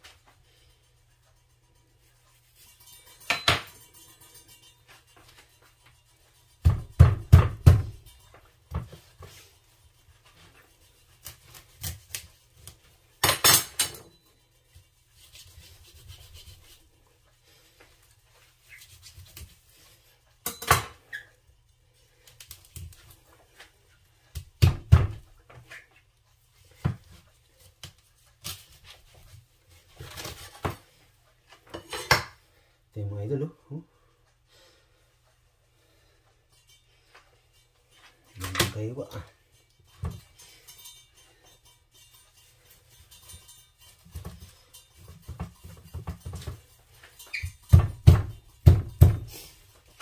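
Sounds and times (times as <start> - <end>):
knife and dishes knocking: 3.2 - 4.0, 6.6 - 8.2, 45.0 - 49.4.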